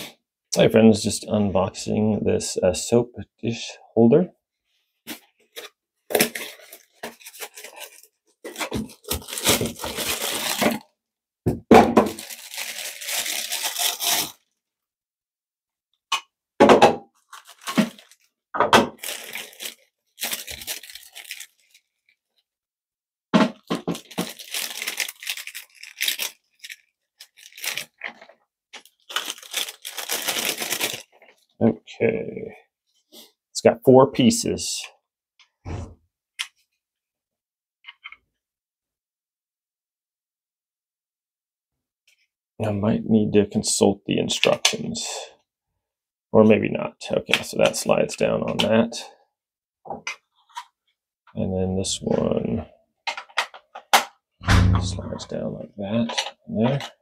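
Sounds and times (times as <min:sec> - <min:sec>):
packaging wrap crinkling and tearing: 0:05.5 - 0:10.9, 0:12.1 - 0:14.6, 0:17.2 - 0:18.3, 0:18.9 - 0:22.2, 0:23.6 - 0:31.4
hard plastic pieces knocking: 0:23.4 - 0:24.9.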